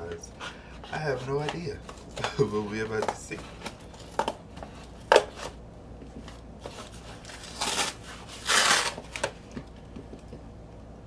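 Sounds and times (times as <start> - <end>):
packing tape tearing off cardboard: 6.6 - 9.4.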